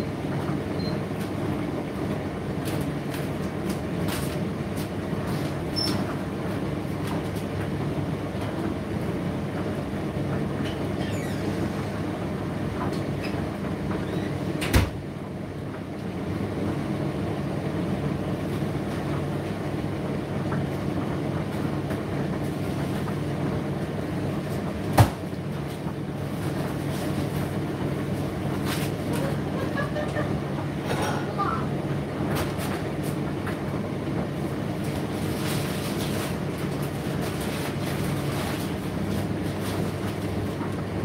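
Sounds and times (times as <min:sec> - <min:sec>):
tumble dryer humming: 0:00.0 - 0:41.0
sharp knocks in dryer: 0:14.6 - 0:15.0, 0:24.9 - 0:25.4.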